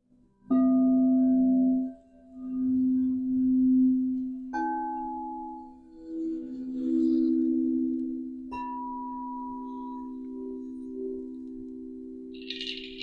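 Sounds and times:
singing bowls ringing: 0:12.2 - 0:13.0.

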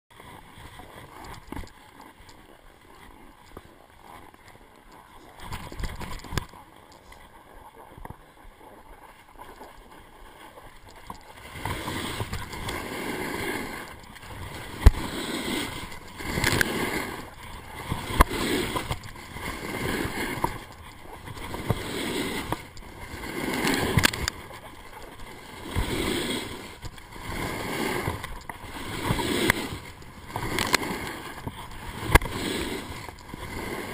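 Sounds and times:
snowboard carving on snow: 0:07.4 - 0:33.9.

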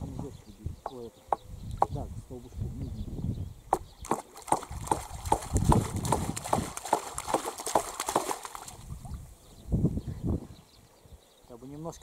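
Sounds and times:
water splashing: 0:03.8 - 0:09.3.

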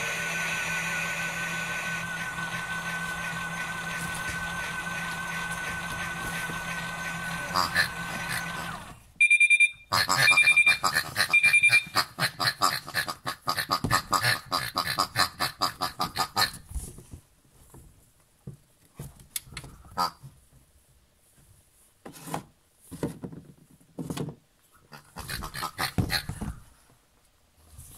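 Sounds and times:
toy electronic beeping: 0:09.2 - 0:12.2.

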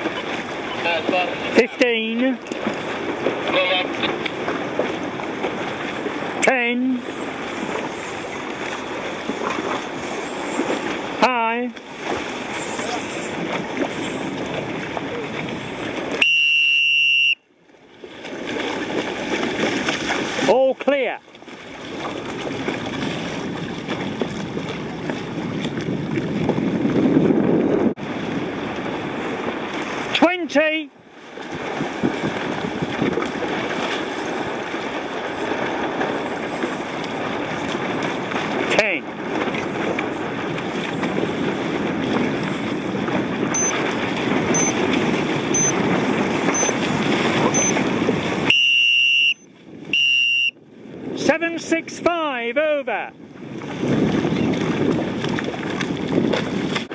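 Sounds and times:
wind buffeting microphone: 0:00.0 - 0:11.2, 0:11.8 - 0:16.2, 0:21.4 - 0:30.2, 0:30.9 - 0:52.0, 0:53.0 - 0:56.9
choppy water around boat: 0:00.0 - 0:56.9
long loud start beep: 0:16.2 - 0:17.4, 0:43.6 - 0:43.8, 0:44.5 - 0:44.8, 0:45.5 - 0:45.8, 0:46.5 - 0:46.8, 0:47.5 - 0:47.8, 0:48.5 - 0:50.6
short high timer beeps: 0:43.5 - 0:43.8, 0:44.5 - 0:44.8, 0:45.6 - 0:45.8, 0:46.5 - 0:46.8, 0:47.5 - 0:47.8, 0:48.5 - 0:49.4.

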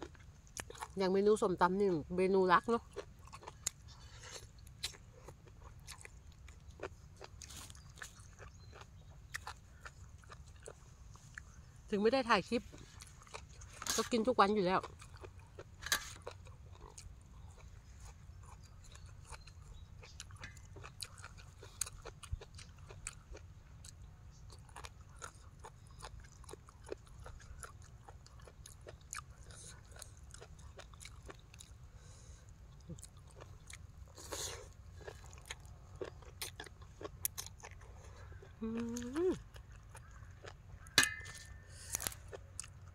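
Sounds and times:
person chewing food: 0:00.0 - 0:01.0, 0:02.8 - 0:11.8, 0:12.6 - 0:42.9
small crunches: 0:03.0 - 0:11.6, 0:32.8 - 0:42.9.

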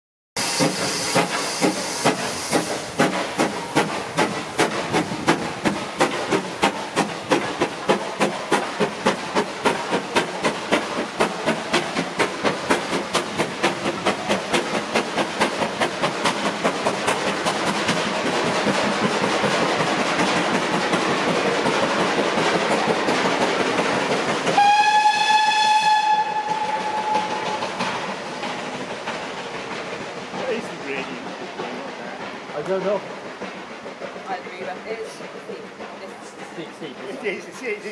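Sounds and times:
steam hiss: 0:00.4 - 0:37.9
steam locomotive exhaust beat: 0:00.4 - 0:37.9
steam whistle blast: 0:24.6 - 0:27.6.

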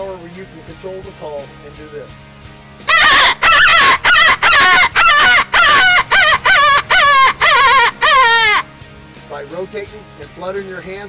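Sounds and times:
predator call squealing: 0:02.9 - 0:08.6.

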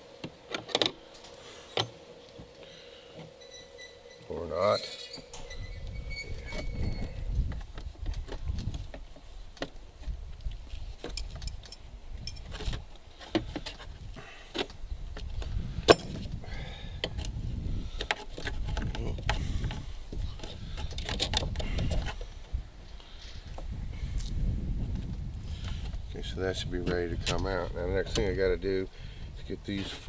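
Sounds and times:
low rumble: 0:05.2 - 0:08.7.

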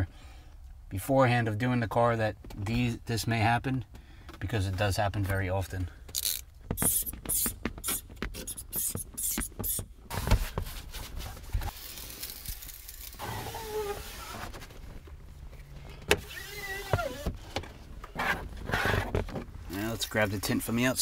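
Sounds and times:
scrubbing wet window glass: 0:13.0 - 0:14.6.

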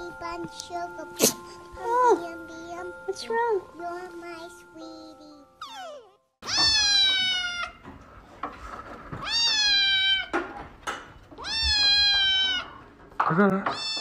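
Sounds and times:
kitten meowing loudly: 0:06.4 - 0:07.8, 0:11.4 - 0:12.7, 0:13.8 - 0:14.0.

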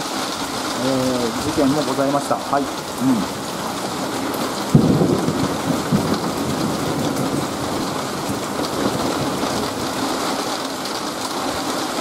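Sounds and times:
heavy rain falling: 0:00.0 - 0:12.0
thunderclap rumbling: 0:03.2 - 0:10.2.

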